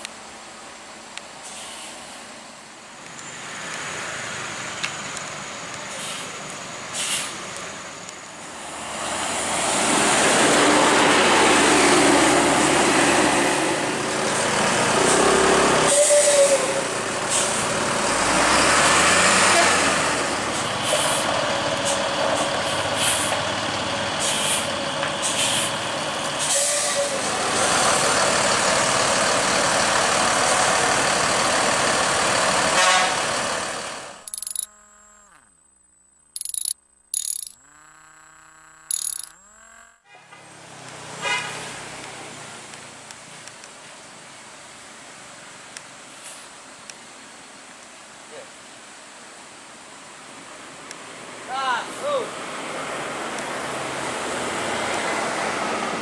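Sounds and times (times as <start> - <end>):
air brake hisses: 1.4 - 2.1, 7.0 - 7.4, 24.2 - 25.7.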